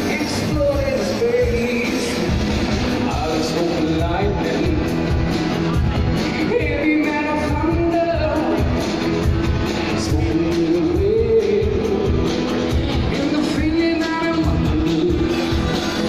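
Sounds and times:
person singing: 0.0 - 5.2, 5.8 - 16.0
live pop-rock band: 0.0 - 16.0.

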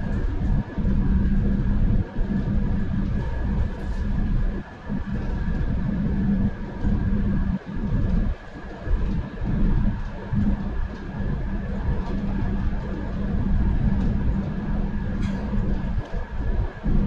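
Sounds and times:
train rumble: 0.0 - 17.0.

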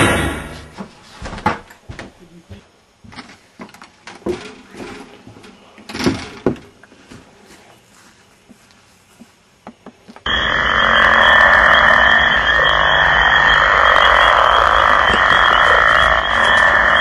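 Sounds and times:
chorus of calling animals: 10.3 - 17.0.

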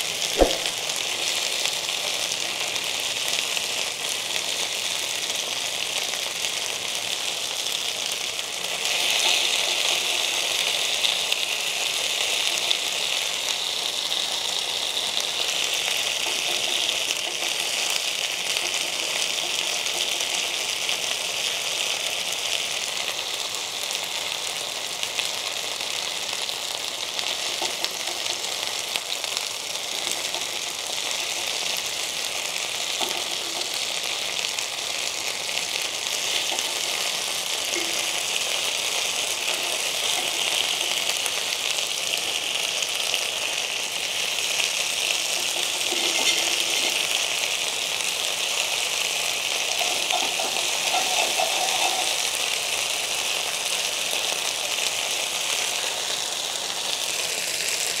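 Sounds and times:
chicken sizzling in oil: 0.0 - 58.0
tongs clinking: 33.0 - 33.8, 36.2 - 37.1, 37.7 - 38.5, 39.4 - 41.2, 45.2 - 47.3, 49.6 - 52.3.

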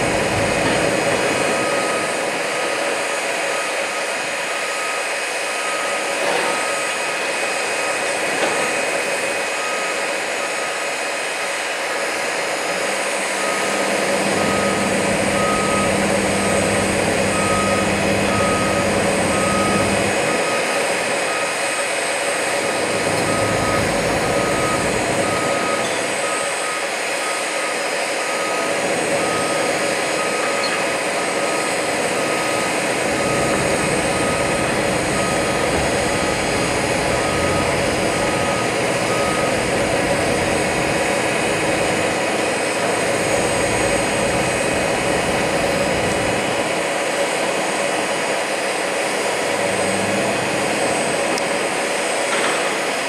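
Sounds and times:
reversing alarm beeping: 0.0 - 46.4
diesel engines running: 0.0 - 53.0
deeper engine hum: 13.1 - 21.4, 28.4 - 46.7.

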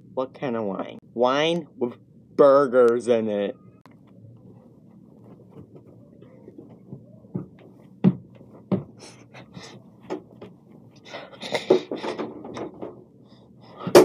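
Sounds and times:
dull thumps: 6.6 - 9.1.

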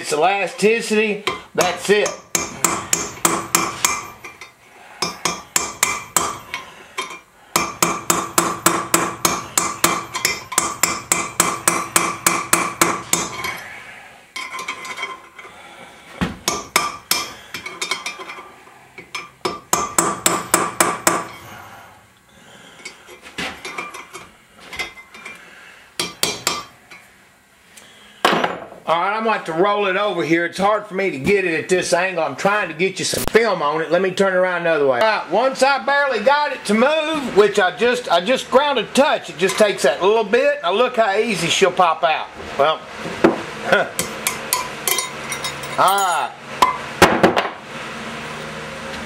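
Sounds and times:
hammer striking chisel on metal: 1.2 - 13.6, 16.4 - 18.4, 19.0 - 21.5, 26.0 - 26.7, 44.0 - 46.8.

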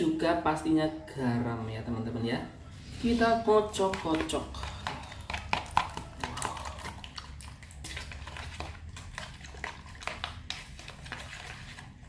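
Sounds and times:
metal spoon beating in plastic bowl: 3.6 - 11.9.

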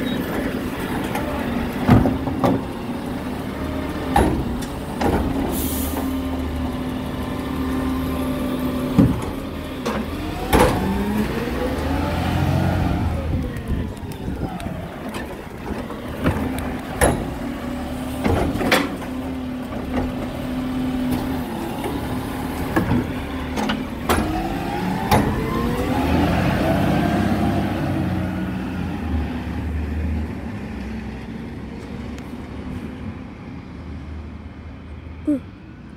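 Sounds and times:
garbage truck engine revving: 0.0 - 30.8
hydraulic arm clunks: 4.1 - 6.1, 8.8 - 11.1, 14.2 - 25.7.

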